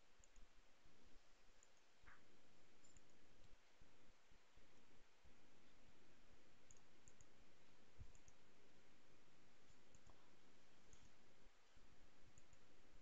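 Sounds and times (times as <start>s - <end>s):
computer mouse clicks: 0.2s - 0.5s, 1.6s - 3.6s, 6.6s - 7.4s, 8.0s - 8.4s, 9.7s - 10.2s, 12.3s - 12.7s.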